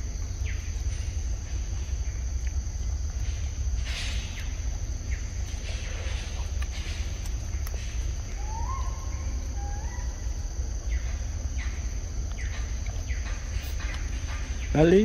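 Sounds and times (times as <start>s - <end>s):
high insect drone: 0.0s - 15.0s
bird whistling: 8.3s - 10.3s.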